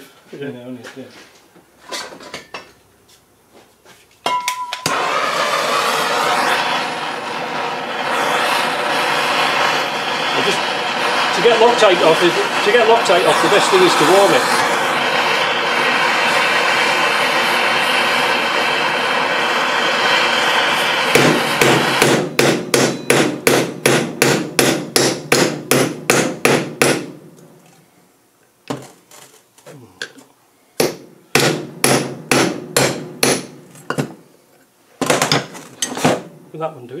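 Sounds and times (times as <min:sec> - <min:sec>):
gas torch flame hissing: 0:04.8 - 0:27.1
metal hammer blows: 0:20.8 - 0:27.2, 0:30.8 - 0:33.6.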